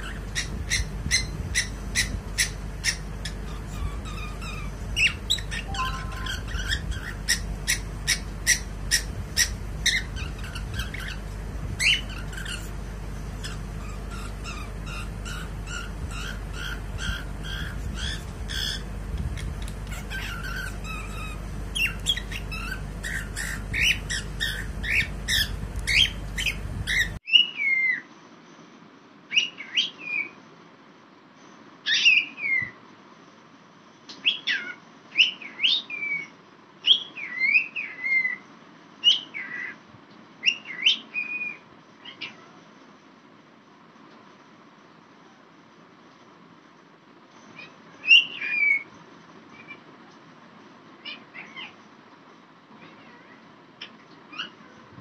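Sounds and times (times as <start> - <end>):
cockatiel chirping and whistling: 0.0 - 12.7, 13.4 - 28.0
steady low hum: 0.0 - 27.3.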